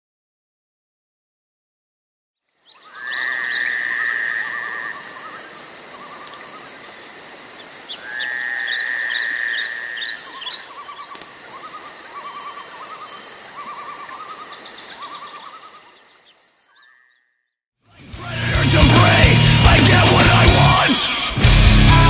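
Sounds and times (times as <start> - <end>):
animal trills and chirps: 2.6 - 6.7, 7.6 - 17.5.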